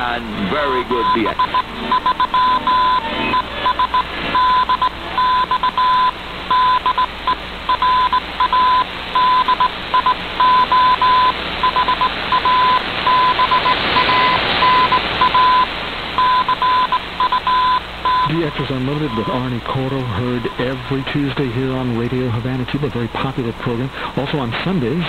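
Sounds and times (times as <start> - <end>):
radio hiss: 0.0 - 25.0
morse code tone: 0.9 - 7.1, 7.7 - 19.5, 20.1 - 21.2.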